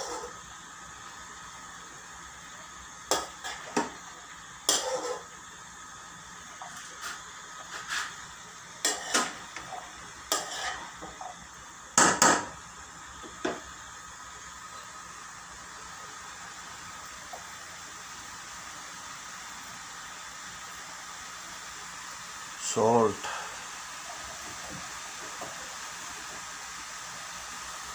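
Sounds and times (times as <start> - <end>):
metal spoon scraping frying pan: 0.0 - 0.4, 3.1 - 3.8, 4.7 - 5.3, 8.8 - 11.2
steady hiss: 0.0 - 27.9.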